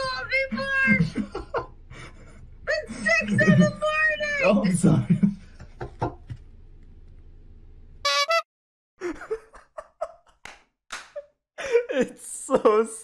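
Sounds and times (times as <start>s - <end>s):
person laughing: 9.0s - 10.3s.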